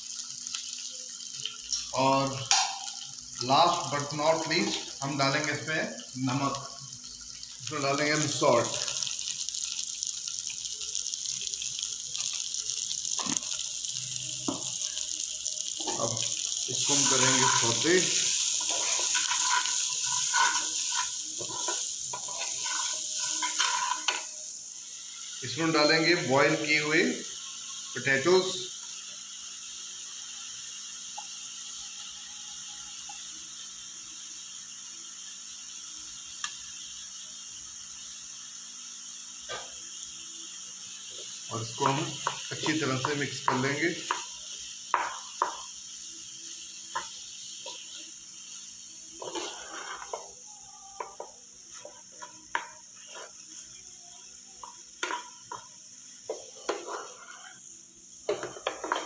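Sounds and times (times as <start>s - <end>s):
food frying in a pan: 0.0s - 59.0s
spatula knocking and scraping pan: 18.6s - 24.2s, 44.9s - 45.6s, 49.2s - 50.3s, 56.3s - 57.6s, 58.2s - 59.0s.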